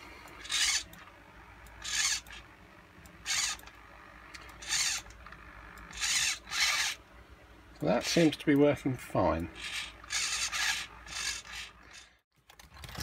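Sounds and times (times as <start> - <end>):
servo motor whirring: 0.4 - 1.1, 1.7 - 2.4, 3.2 - 3.8, 4.4 - 7.0, 9.6 - 12.2.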